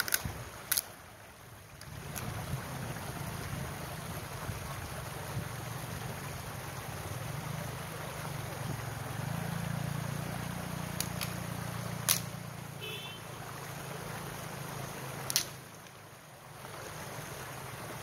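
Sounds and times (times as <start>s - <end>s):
sticks cracking: 0.0s - 0.9s, 11.0s - 11.4s, 12.0s - 12.4s, 15.2s - 15.9s
stream rushing over rocks: 0.0s - 18.0s.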